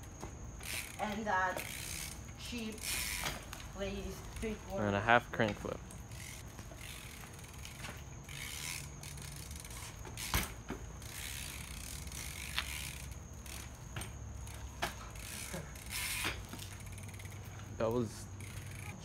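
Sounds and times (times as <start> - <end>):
bike hub ratcheting: 0.1 - 19.0
sharp knocks from bike: 9.6 - 11.4, 12.4 - 16.8.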